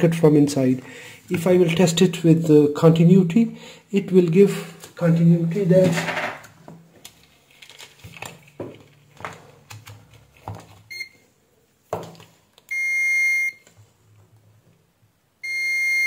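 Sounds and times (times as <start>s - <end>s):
continuity buzzer beeping: 15.4s - 16.0s.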